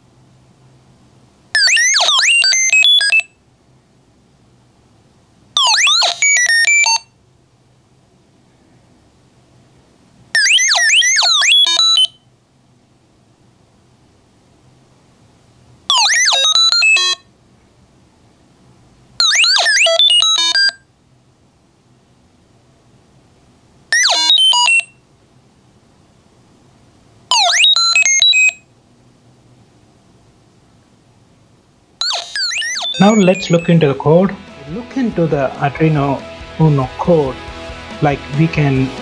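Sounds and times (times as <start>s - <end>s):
electronic robot chirps and beeps: 1.6s - 3.3s, 5.6s - 7.0s, 10.4s - 12.2s, 15.9s - 17.2s, 19.2s - 20.8s, 24.0s - 24.9s, 27.3s - 28.6s, 32.0s - 34.8s.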